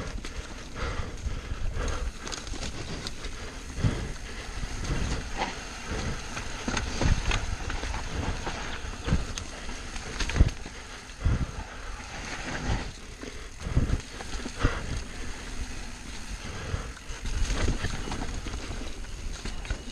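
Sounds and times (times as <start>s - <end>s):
bike rattling: 0.0s - 19.9s
bike tyres rolling over dirt: 0.0s - 19.9s
bike knocking over bumps: 2.0s - 10.8s.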